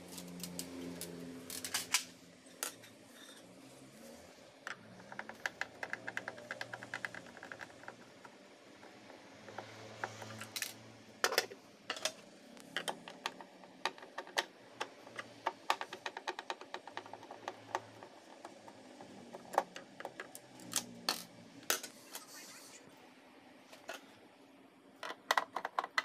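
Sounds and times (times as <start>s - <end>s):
screws knocking on desk: 5.0s - 8.2s, 12.8s - 18.8s.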